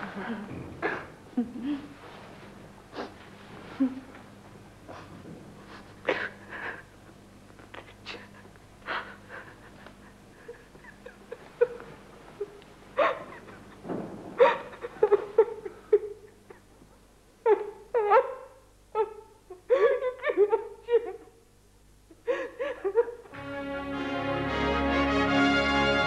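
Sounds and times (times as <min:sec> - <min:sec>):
woman crying: 0:00.0 - 0:02.0, 0:03.8 - 0:04.2, 0:05.7 - 0:06.9, 0:07.8 - 0:13.8, 0:14.4 - 0:16.7, 0:17.4 - 0:21.4, 0:22.1 - 0:23.3
woman sobbing: 0:00.0 - 0:02.0, 0:03.7 - 0:04.2, 0:05.7 - 0:06.9, 0:07.8 - 0:16.7, 0:17.4 - 0:21.4, 0:22.1 - 0:23.4
woman sniffing: 0:02.9 - 0:03.2.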